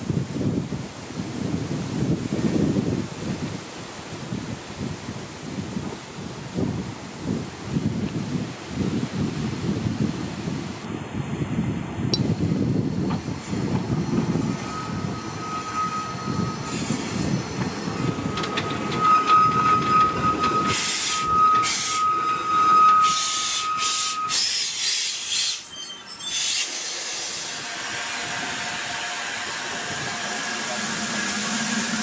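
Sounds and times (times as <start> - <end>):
steam train rolling: 12.3 - 32.0
steam hissing: 12.8 - 32.0
high-pitched squeal: 13.3 - 32.0.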